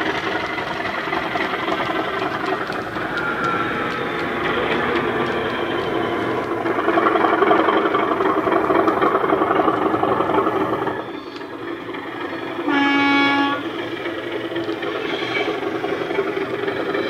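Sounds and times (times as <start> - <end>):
recorded diesel engine running: 0.0 - 17.0
locomotive horn blast: 3.0 - 6.6, 12.6 - 13.7.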